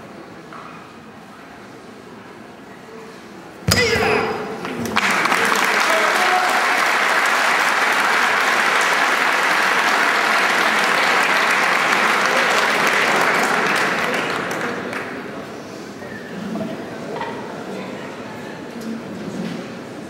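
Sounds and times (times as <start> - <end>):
audience applause: 4.8 - 15.2.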